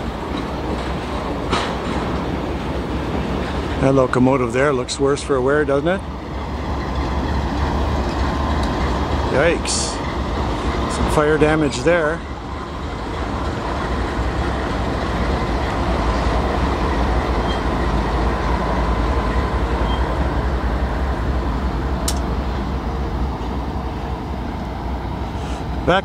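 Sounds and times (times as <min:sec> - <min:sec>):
diesel locomotive engine rumble: 0:00.0 - 0:26.0
wheel and rail noise: 0:00.0 - 0:26.0
sharp click: 0:22.0 - 0:22.3.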